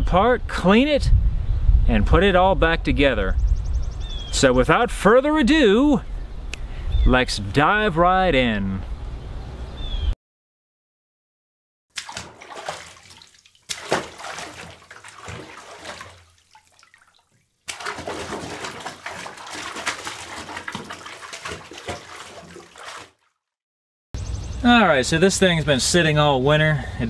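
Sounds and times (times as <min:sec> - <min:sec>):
water splashing and sloshing: 0:11.9 - 0:23.6.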